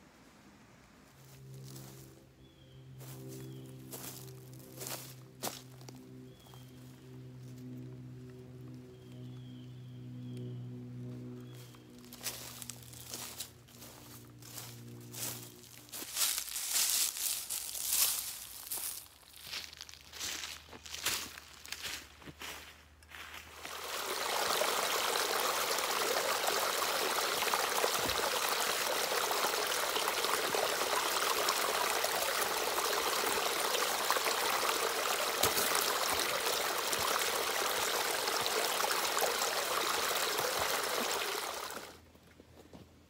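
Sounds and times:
stream splashing over sticks: 23.5s - 42.0s.

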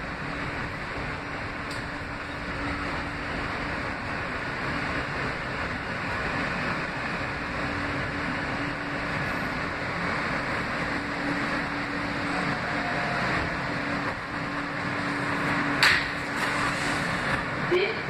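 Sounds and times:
subway car rumbling: 0.0s - 18.0s
sharp clack: 15.8s - 16.6s.

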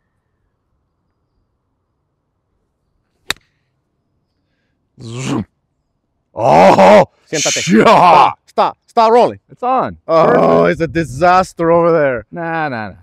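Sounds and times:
golf club striking ball: 3.2s - 3.5s
man exclaiming: 5.0s - 5.5s, 6.4s - 8.4s, 10.1s - 11.1s.

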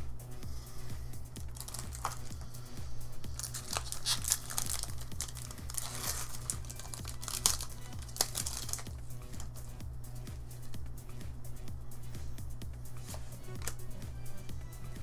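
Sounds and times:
background music with beat: 0.0s - 15.0s
foil wrapper crinkling and tearing: 1.4s - 2.4s, 3.3s - 9.7s, 13.6s - 13.8s.

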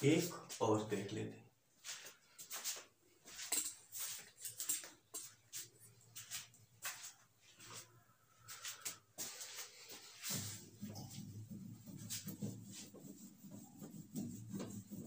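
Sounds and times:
person moving at whiteboard: 1.8s - 15.0s.

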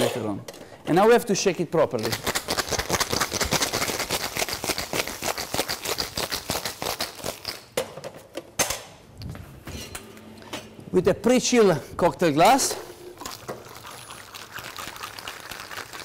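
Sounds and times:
ice rattling in cocktail shaker: 2.0s - 7.7s, 13.1s - 16.0s.

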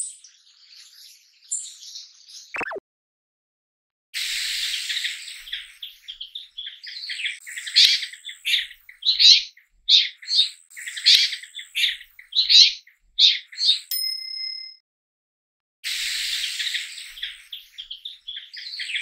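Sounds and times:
birds calling: 4.3s - 13.9s, 15.9s - 19.0s.

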